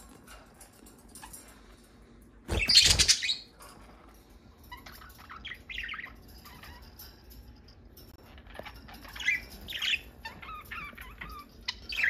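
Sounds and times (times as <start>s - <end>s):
budgerigars chirping: 2.5s - 3.5s.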